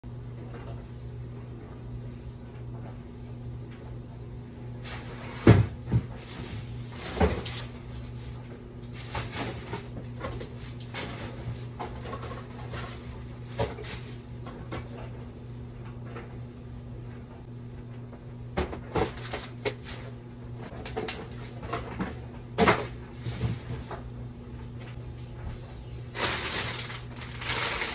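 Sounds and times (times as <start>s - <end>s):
steady low hum: 0.1s - 27.9s
jars and bottles clattering on shelves: 4.8s - 15.0s, 18.6s - 20.1s, 20.7s - 24.0s
rustling: 26.1s - 27.9s.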